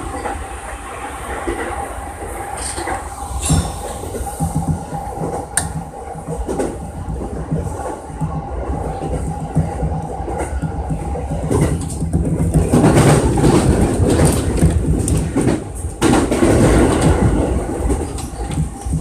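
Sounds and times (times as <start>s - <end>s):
train rolling rumble: 0.0s - 19.0s
wheels clattering over rail joints: 11.4s - 19.0s.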